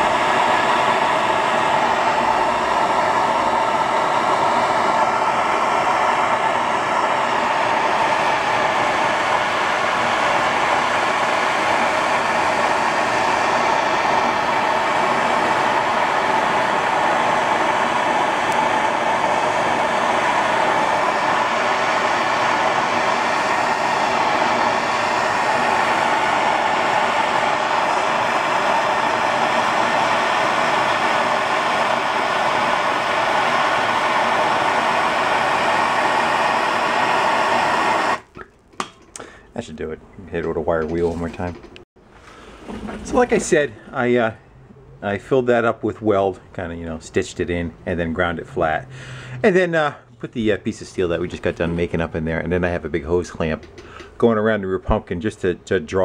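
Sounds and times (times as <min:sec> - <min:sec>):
gas torch hissing: 0:00.0 - 0:41.5, 0:42.2 - 0:44.0.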